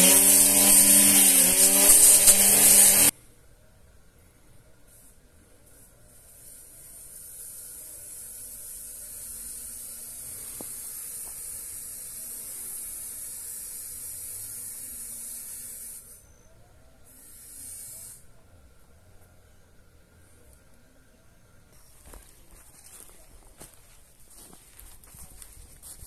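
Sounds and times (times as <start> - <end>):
cicada buzzing: 0.0 - 3.1, 6.1 - 16.4, 17.0 - 18.3.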